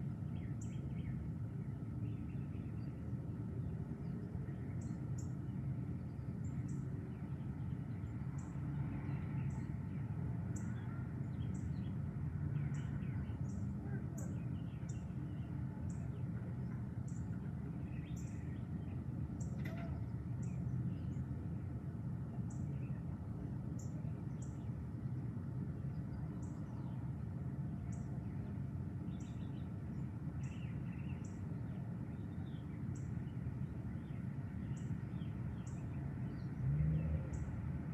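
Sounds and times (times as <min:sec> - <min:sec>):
steady low rumble: 0:00.0 - 0:36.6.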